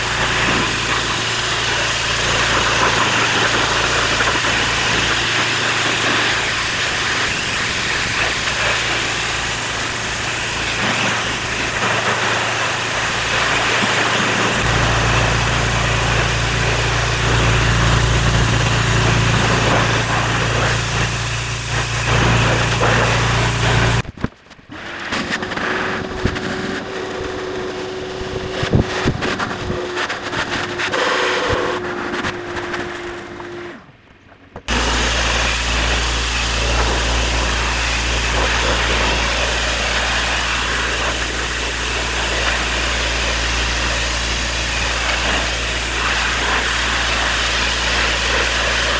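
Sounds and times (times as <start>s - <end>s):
pressure washer motor drone: 0.0s - 24.0s, 24.7s - 33.9s, 34.7s - 48.9s
water spray hissing: 0.0s - 24.0s, 34.7s - 48.9s.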